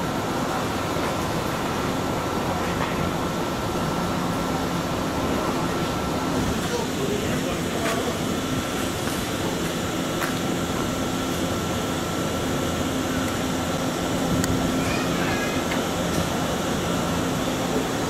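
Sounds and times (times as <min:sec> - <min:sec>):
electric train hum: 0:00.0 - 0:18.0
thin constant whine: 0:00.0 - 0:18.0.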